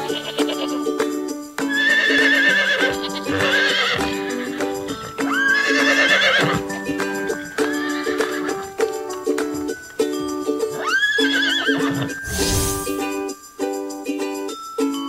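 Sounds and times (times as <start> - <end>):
background music: 0.0 - 15.0
horse whinnying: 1.7 - 6.8, 7.4 - 8.6, 10.8 - 13.0.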